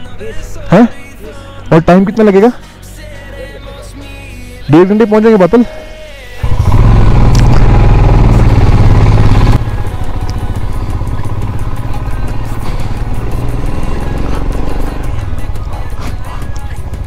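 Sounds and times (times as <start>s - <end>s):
motorcycle engine running: 6.4s - 17.0s
tractor engine running: 6.4s - 17.0s.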